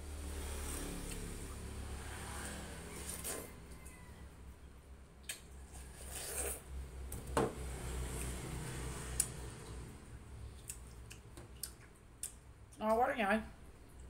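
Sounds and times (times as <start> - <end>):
wet chewing: 10.4 - 12.8
sharp mouth clicks: 10.5 - 12.4.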